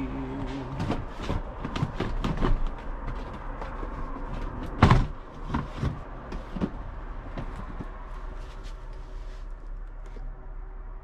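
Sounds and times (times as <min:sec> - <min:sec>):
drawers knocking and clattering: 0:00.7 - 0:08.0
loud thud: 0:04.7 - 0:05.2.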